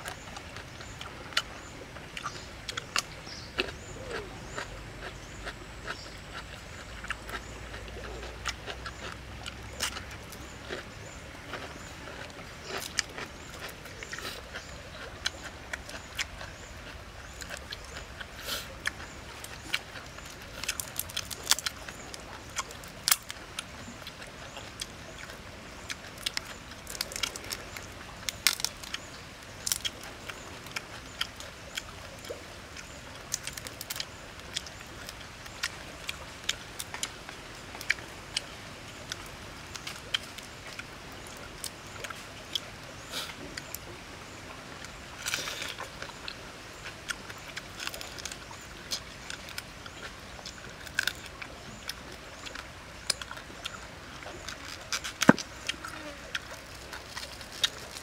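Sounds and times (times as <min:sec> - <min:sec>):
steady background hiss: 0:00.0 - 0:58.0
prawn shells crackling and snapping: 0:18.9 - 0:25.2, 0:25.9 - 0:38.0, 0:44.9 - 0:58.0.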